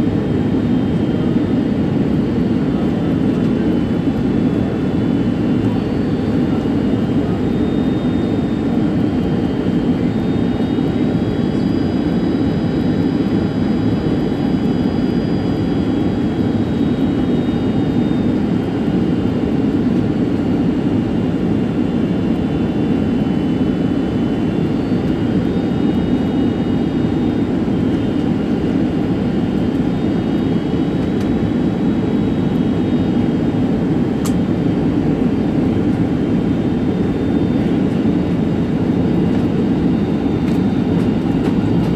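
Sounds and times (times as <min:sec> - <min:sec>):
airliner cabin engine rush: 0:00.0 - 0:41.9.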